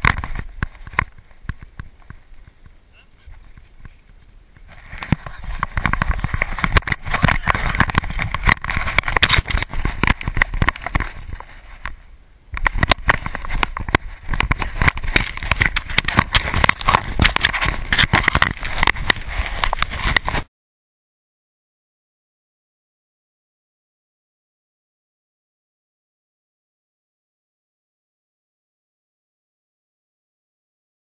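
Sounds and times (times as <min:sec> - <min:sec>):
camera housing jostling: 0:00.0 - 0:02.5, 0:04.9 - 0:20.4
paws striking snow: 0:12.7 - 0:20.5.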